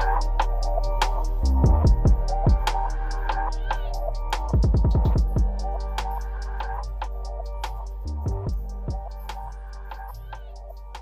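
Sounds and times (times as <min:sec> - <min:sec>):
music with a steady beat: 0:00.0 - 0:11.0
deep drum roll: 0:01.1 - 0:06.1.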